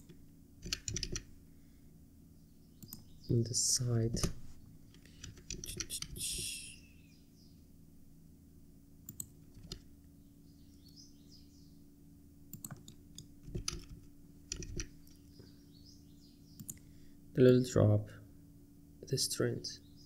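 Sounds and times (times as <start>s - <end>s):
keyboard and mouse clicking: 0.0s - 1.3s, 4.1s - 6.4s, 9.1s - 9.9s, 12.5s - 15.2s, 16.6s - 16.8s
faint low hum: 0.0s - 20.0s.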